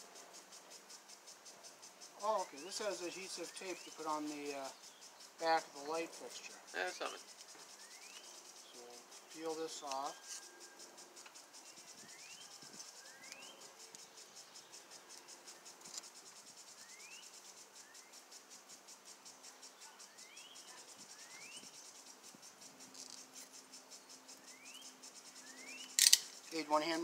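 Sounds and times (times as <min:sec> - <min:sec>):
insect trilling: 0:00.0 - 0:27.0.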